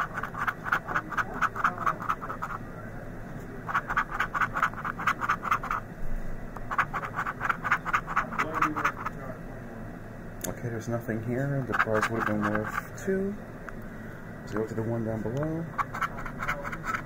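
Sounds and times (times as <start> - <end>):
coin scraping scratch card: 0.0 - 2.6, 3.7 - 5.8, 6.6 - 9.1, 11.6 - 12.9, 15.7 - 17.0.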